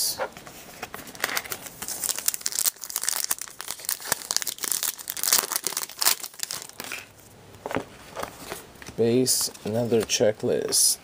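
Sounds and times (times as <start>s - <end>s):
wrapper crinkling and tearing: 1.1s - 7.1s.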